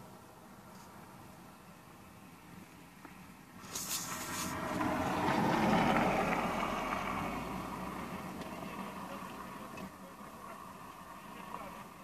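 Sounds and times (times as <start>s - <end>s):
car driving past: 3.6s - 12.0s.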